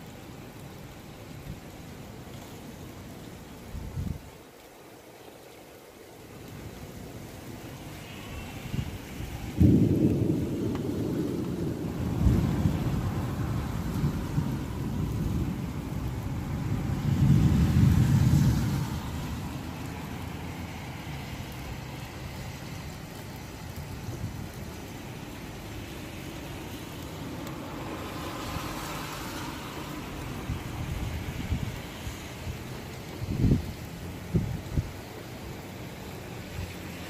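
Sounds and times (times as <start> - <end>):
rain hiss: 0.0 - 37.0
thunder rumbling: 8.0 - 35.6.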